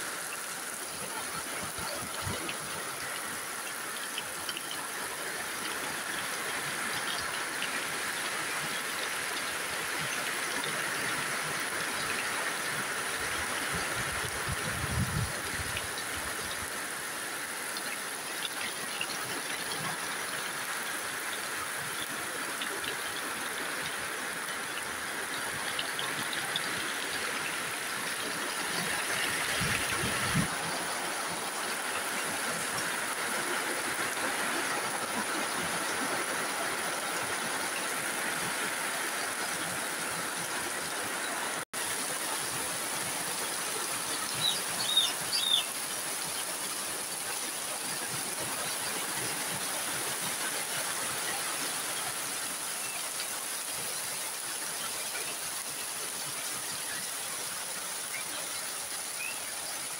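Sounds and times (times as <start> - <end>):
heavy rain on water: 0.0 - 59.9.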